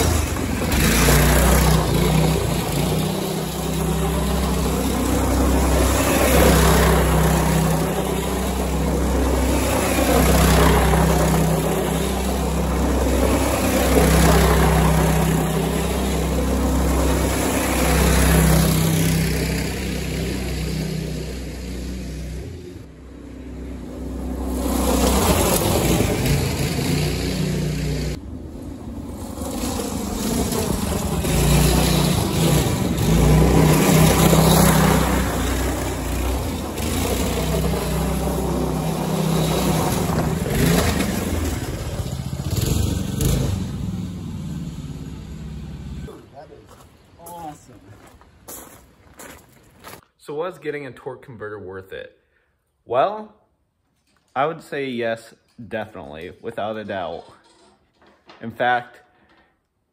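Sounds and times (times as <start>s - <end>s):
go-kart engine revving: 0.0s - 46.3s
tyres crunching on gravel: 46.4s - 50.1s.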